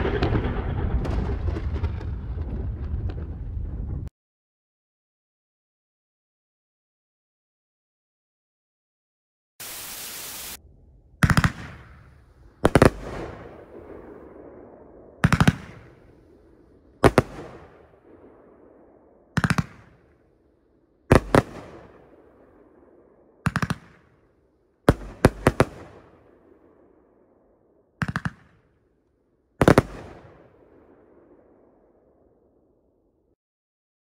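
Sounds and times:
fireworks bangs: 0:00.0 - 0:04.1, 0:09.6 - 0:10.6, 0:11.2 - 0:20.4, 0:21.1 - 0:24.3, 0:24.9 - 0:26.8, 0:28.0 - 0:28.7, 0:29.6 - 0:31.3
short hiss: 0:09.6 - 0:10.6.

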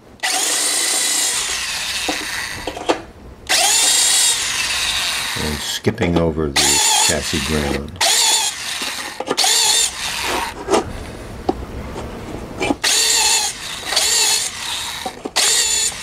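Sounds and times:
drill bit grinding metal: 0:00.2 - 0:02.9, 0:03.5 - 0:05.9, 0:06.6 - 0:10.6, 0:12.6 - 0:16.0
electric drill motor whine: 0:00.2 - 0:02.9, 0:03.5 - 0:05.8, 0:06.6 - 0:10.6, 0:12.8 - 0:16.0.

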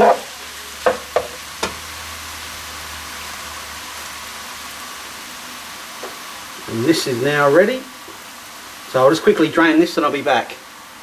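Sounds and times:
spatula knocking on pan: 0:00.0 - 0:01.8
food sizzling in frying pan: 0:00.0 - 0:11.0.

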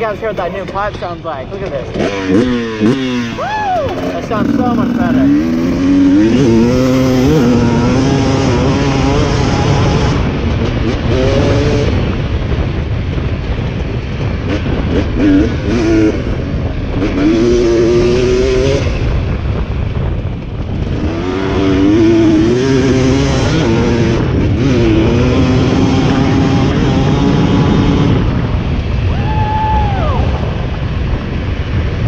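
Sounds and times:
dirt bike engine revving: 0:00.0 - 0:29.0
steady low rumble: 0:00.0 - 0:32.0.

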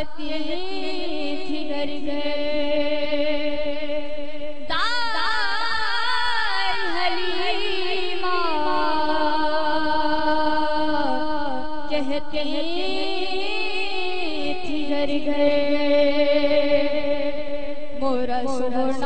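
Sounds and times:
boy singing unaccompanied: 0:00.0 - 0:03.3, 0:04.7 - 0:17.0, 0:18.0 - 0:19.0.

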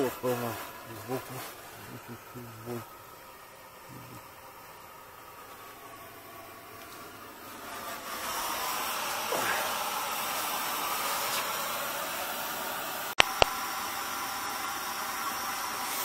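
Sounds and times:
gas burner flame hissing: 0:00.0 - 0:16.0
sharp clicks: 0:13.2 - 0:13.6.

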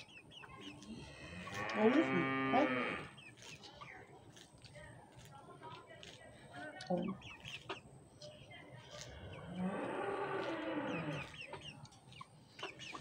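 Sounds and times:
chicks peeping: 0:00.0 - 0:13.0
cow mooing: 0:01.2 - 0:03.1.

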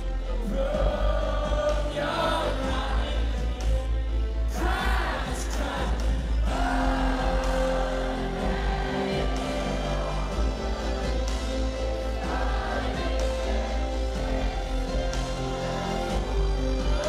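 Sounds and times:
man singing: 0:00.0 - 0:11.2
heavy low bass: 0:00.0 - 0:17.0.

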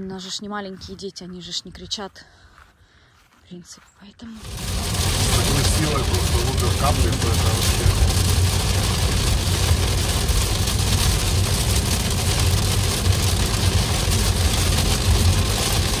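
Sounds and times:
road and tyre noise: 0:04.3 - 0:16.0
rain on windscreen: 0:04.4 - 0:16.0.

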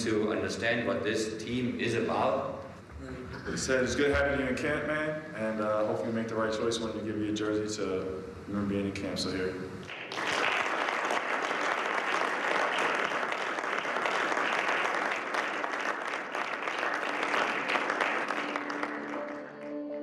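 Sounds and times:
people applauding: 0:09.9 - 0:20.0
soft ambient music: 0:18.1 - 0:20.0.

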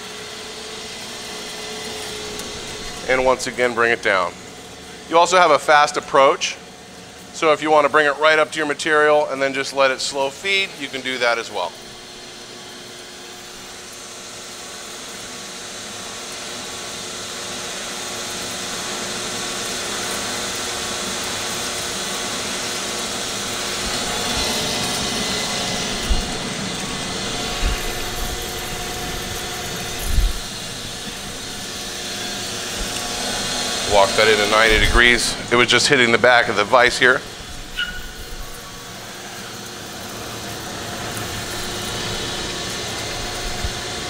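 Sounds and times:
bandsaw motor hum and hiss: 0:00.0 - 0:44.0.

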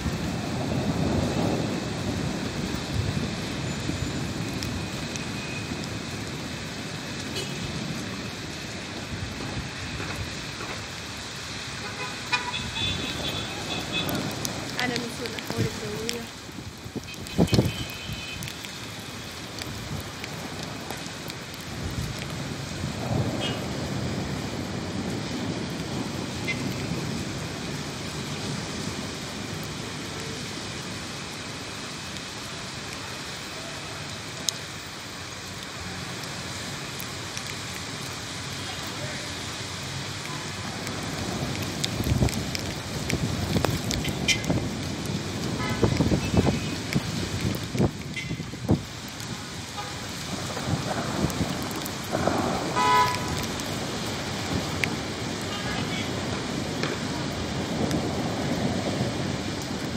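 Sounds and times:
city street traffic: 0:00.0 - 0:59.9
heavy rain falling: 0:00.0 - 0:59.9
car horn honking: 0:11.8 - 0:14.1, 0:17.2 - 0:18.4, 0:52.8 - 0:53.4.

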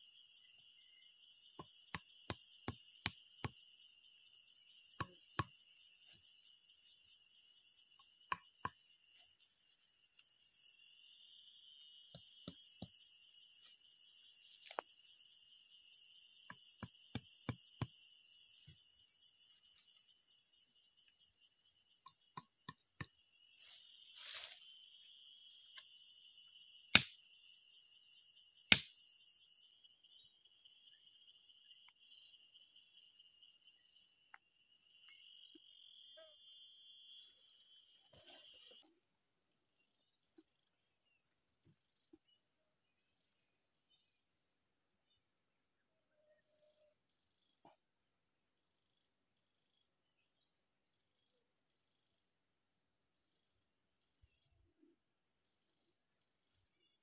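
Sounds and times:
insects trilling: 0:00.0 - 0:40.2.

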